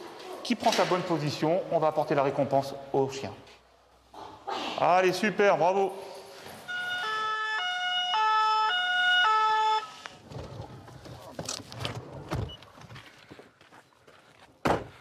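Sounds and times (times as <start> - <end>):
two-tone emergency siren: 6.7 - 10.2.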